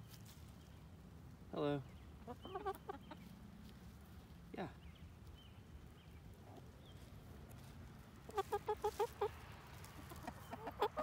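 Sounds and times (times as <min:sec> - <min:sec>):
hen clucking: 0:02.2 - 0:03.4, 0:08.2 - 0:11.0.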